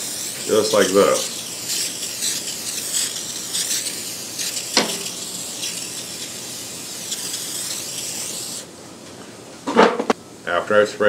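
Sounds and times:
aerosol spray hissing: 0:00.0 - 0:08.7.

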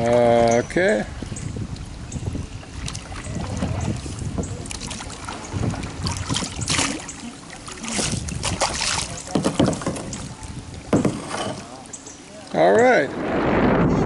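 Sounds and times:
paddle splashing in water: 0:02.6 - 0:12.6.

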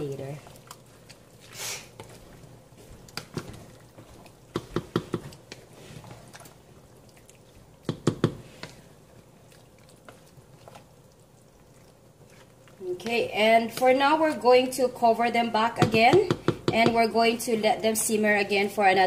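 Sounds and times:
wet squelching of stirred stew: 0:00.0 - 0:19.0
spoon knocking against pot: 0:04.5 - 0:05.3, 0:07.9 - 0:08.4, 0:15.8 - 0:17.1.

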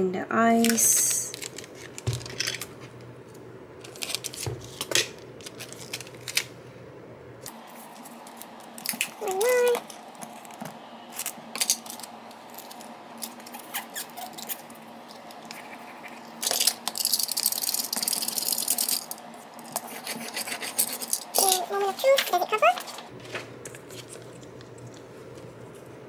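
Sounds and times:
packing tape crinkling and scraping: 0:00.6 - 0:02.9, 0:03.8 - 0:06.5, 0:07.4 - 0:15.4.

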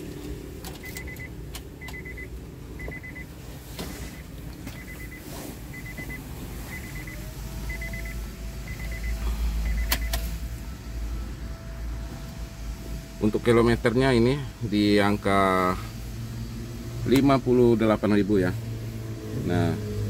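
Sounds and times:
car warning chime beeping: 0:00.7 - 0:14.2.

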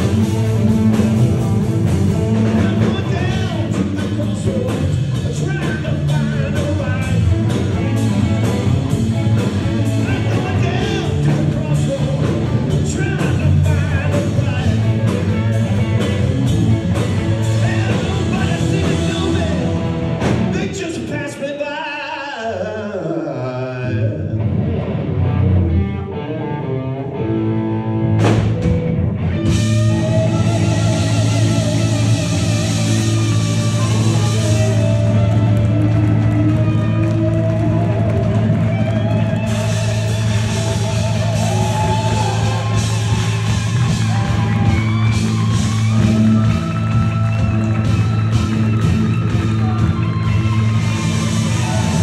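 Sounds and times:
bass guitar: 0:00.0 - 0:21.4, 0:23.6 - 0:52.0
electric guitars: 0:00.0 - 0:21.4, 0:23.4 - 0:52.0
drums: 0:00.0 - 0:21.8, 0:28.0 - 0:52.0
person singing: 0:02.4 - 0:08.6, 0:09.4 - 0:16.1, 0:17.3 - 0:19.9
guitar notes sliding down: 0:24.3 - 0:52.0.

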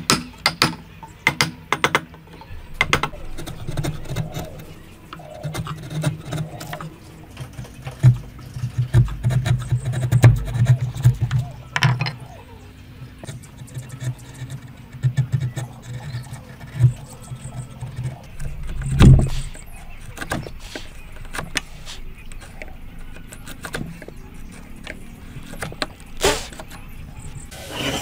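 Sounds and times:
chisel taps and knocks on wood: 0:00.0 - 0:02.1
low hum: 0:02.4 - 0:23.4.

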